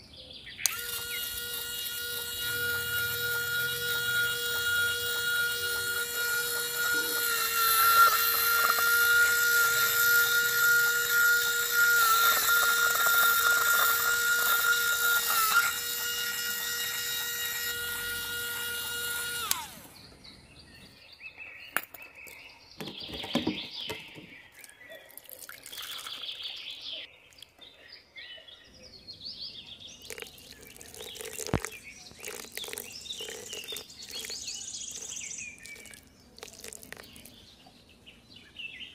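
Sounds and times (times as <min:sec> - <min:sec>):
small electric motor whining: 0:00.6 - 0:20.2, 0:30.1 - 0:37.2.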